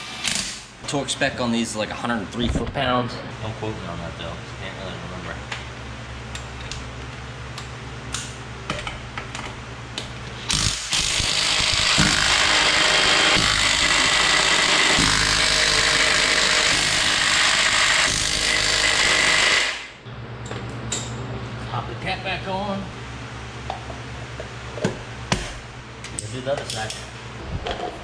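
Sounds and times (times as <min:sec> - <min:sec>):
impact wrench hammering: 0:10.5 - 0:19.9.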